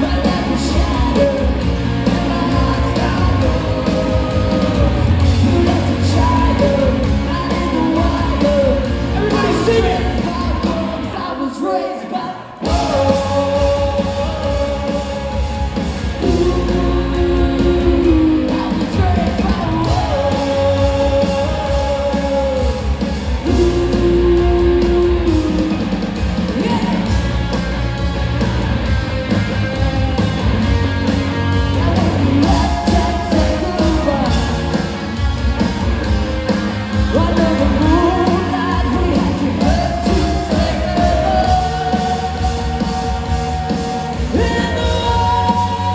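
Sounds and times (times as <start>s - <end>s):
woman singing lead: 0.0s - 27.6s, 31.4s - 35.8s, 37.0s - 45.9s
live ska-punk band: 0.0s - 45.9s.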